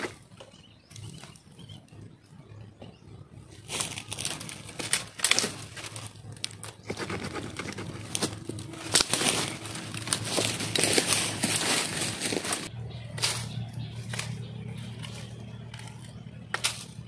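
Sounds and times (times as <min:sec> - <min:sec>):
rustling leaves: 0:03.5 - 0:17.0
dry sticks snapping: 0:03.7 - 0:17.0.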